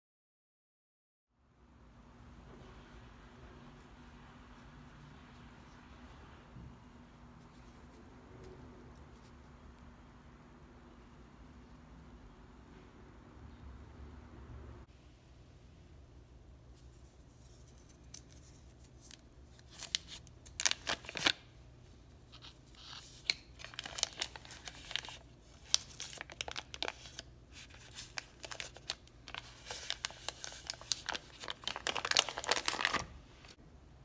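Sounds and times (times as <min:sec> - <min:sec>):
paper wrapper crinkling and tearing: 0:17.4 - 0:21.5, 0:22.1 - 0:33.6.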